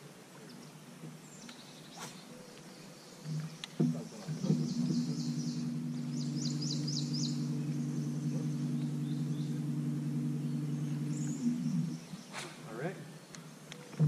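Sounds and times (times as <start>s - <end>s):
bird chirping: 0.4s - 14.0s
electric motor humming: 3.3s - 12.2s.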